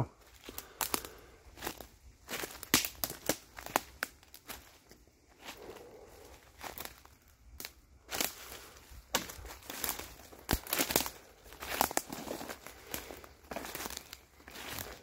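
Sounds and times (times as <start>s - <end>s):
footsteps crunching dry leaves: 0.1s - 15.0s.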